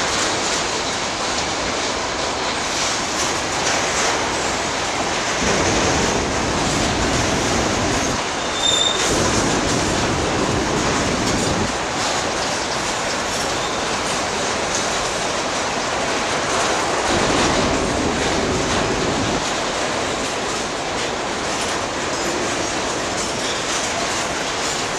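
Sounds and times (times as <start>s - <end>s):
train wheels rolling on rails: 0.0s - 24.9s
high-pitched wheel squeal: 8.0s - 9.1s.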